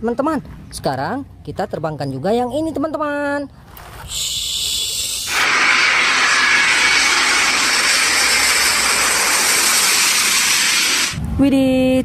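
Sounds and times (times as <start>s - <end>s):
jet engines passing overhead: 5.0s - 11.2s.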